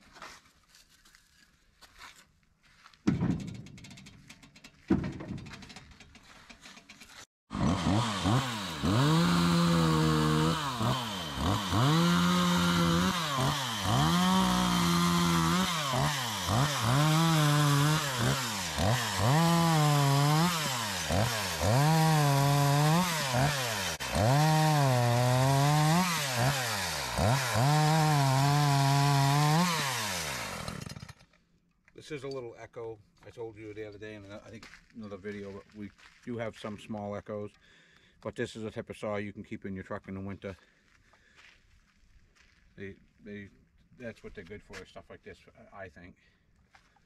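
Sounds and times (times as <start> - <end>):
chainsaw revving and cutting wood: 5.4 - 31.4.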